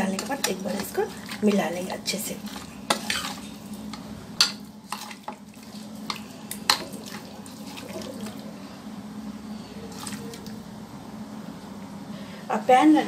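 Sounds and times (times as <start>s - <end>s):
wet squelching of marinade: 4.8s - 8.6s, 9.8s - 10.6s.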